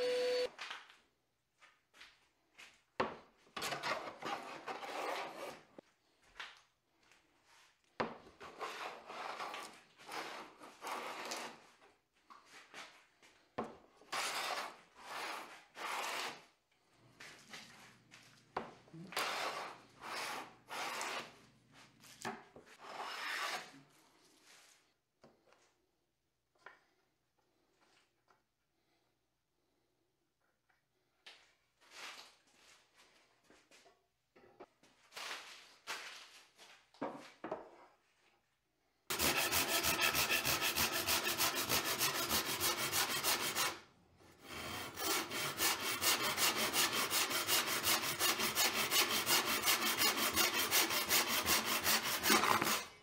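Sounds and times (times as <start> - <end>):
hand plane shaving wood: 14.1 - 16.4, 39.1 - 53.0.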